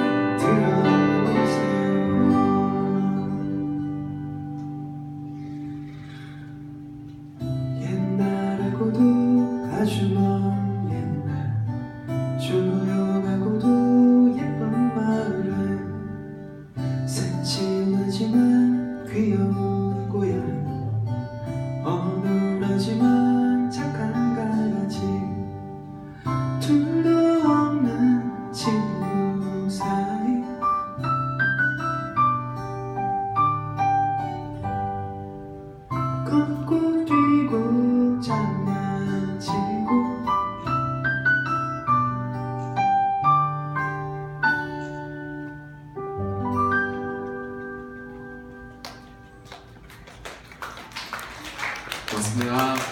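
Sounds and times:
man singing: 0.0s - 3.9s, 7.7s - 11.7s, 12.3s - 16.2s, 17.1s - 21.0s, 21.8s - 25.7s, 26.5s - 30.8s, 36.2s - 40.7s, 52.1s - 52.9s
acoustic guitars strumming: 0.0s - 49.8s.

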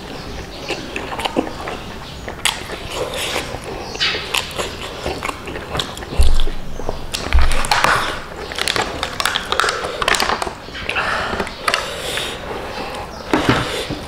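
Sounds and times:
chewing with clicks and smacks: 0.0s - 13.1s
dull thumps: 6.1s - 8.2s.

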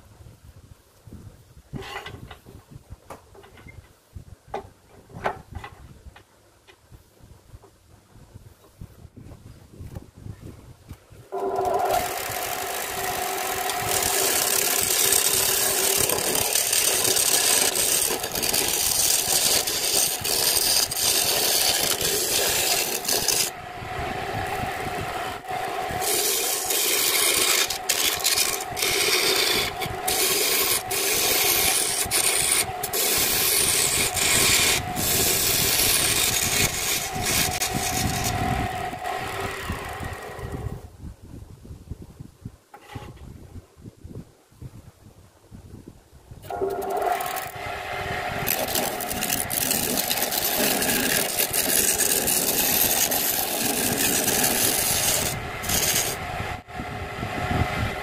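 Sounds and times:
lathe motor hum: 11.3s - 40.7s, 46.5s - 58.0s
turning tool scraping bamboo: 11.3s - 40.7s, 42.7s - 43.2s, 46.4s - 47.8s, 48.4s - 56.4s.

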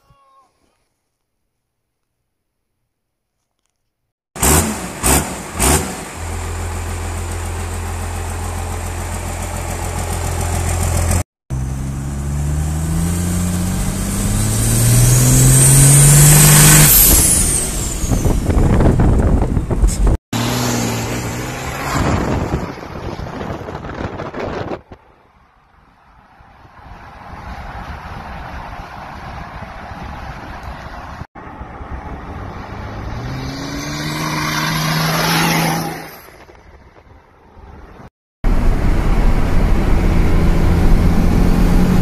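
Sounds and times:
diesel engine revving and idling: 4.4s - 23.5s, 38.5s - 42.0s.

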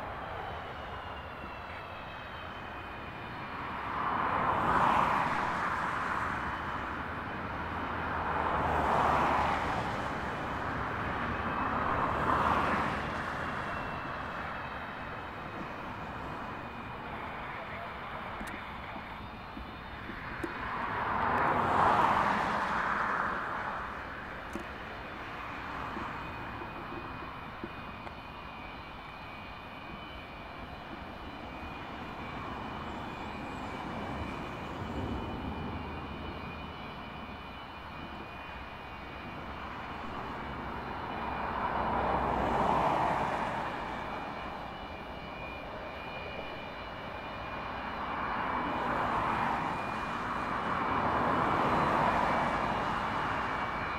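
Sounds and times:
jet engines running: 0.0s - 53.9s.

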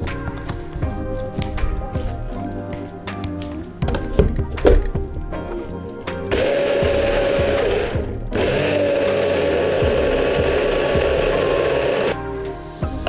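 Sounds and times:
blender motor whine: 6.3s - 12.2s.

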